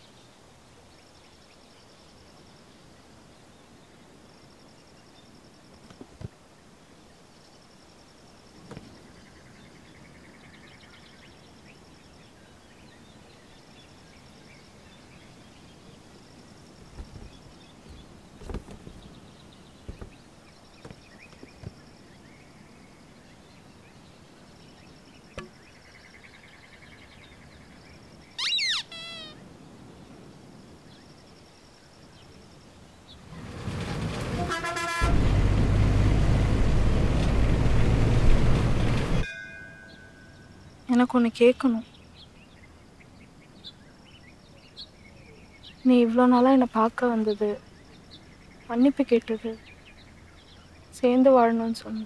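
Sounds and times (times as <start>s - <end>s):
birds chirping and trilling: 8.7s - 29.7s, 39.8s - 52.0s
cardboard box rustling: 16.8s - 19.2s, 19.9s - 20.3s
loud falling bird call: 28.4s - 29.5s.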